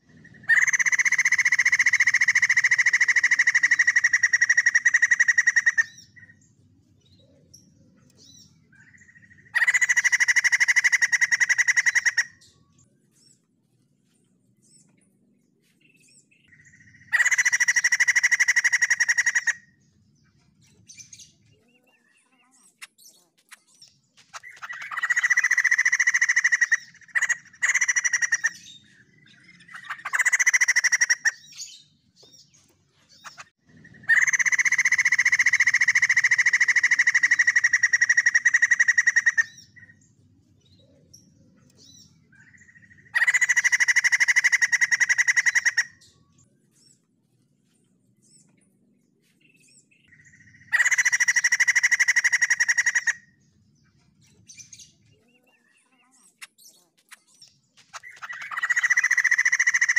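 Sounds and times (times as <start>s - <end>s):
bird rattling calls: 24.2s - 28.8s, 57.8s - 59.9s.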